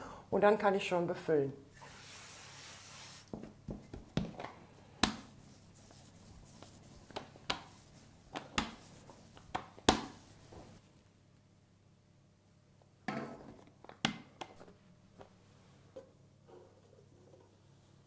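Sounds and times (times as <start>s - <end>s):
hand brushing flour: 1.8s - 3.4s, 5.0s - 10.9s
rolling pin knocking on dough: 7.1s - 7.8s, 8.4s - 8.9s, 9.5s - 10.2s.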